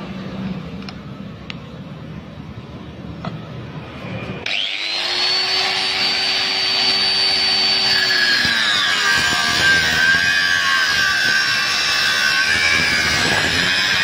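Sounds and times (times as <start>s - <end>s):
angle grinder whining: 4.0s - 14.0s.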